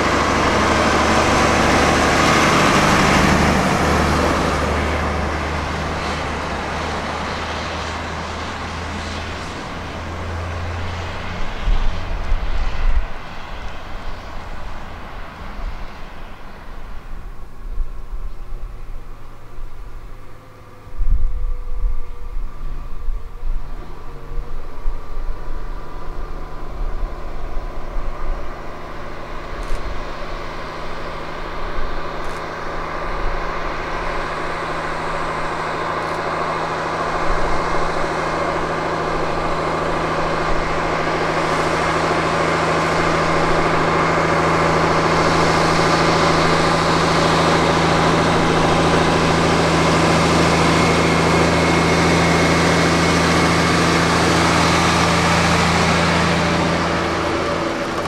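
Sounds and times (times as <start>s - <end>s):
bus engine approaching: 0.0s - 58.0s.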